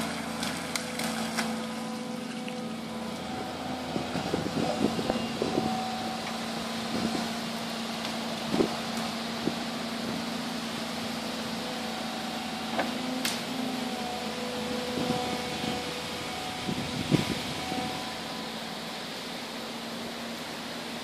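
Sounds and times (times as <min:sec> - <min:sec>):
excavator diesel engine running: 0:00.0 - 0:21.0.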